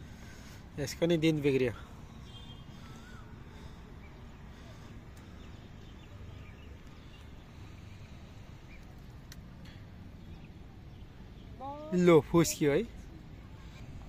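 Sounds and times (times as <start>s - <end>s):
low outdoor rumble: 0.0s - 14.0s
bird chirps: 2.1s - 9.0s.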